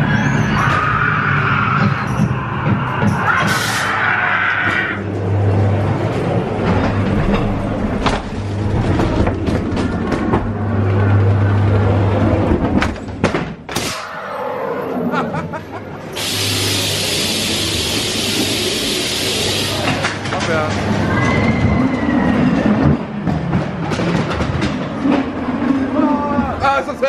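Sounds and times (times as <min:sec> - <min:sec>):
ride car rumbling on track: 0:00.0 - 0:13.2, 0:15.6 - 0:27.0.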